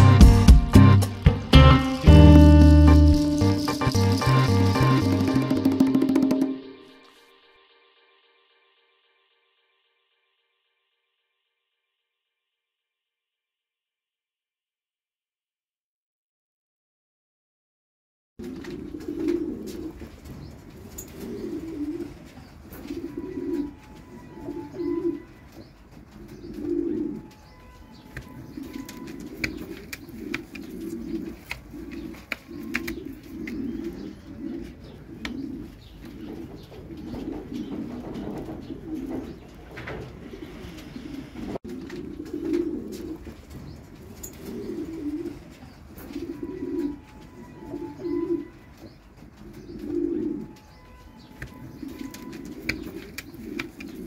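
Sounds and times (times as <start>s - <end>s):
pigeons cooing: 0.0s - 6.8s, 18.4s - 54.0s.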